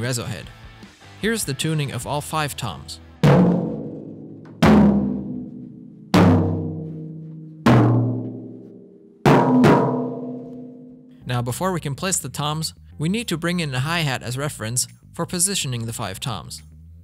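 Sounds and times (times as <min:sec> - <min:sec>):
tom drums struck with mallet: 0:03.2 - 0:08.6, 0:09.2 - 0:10.9.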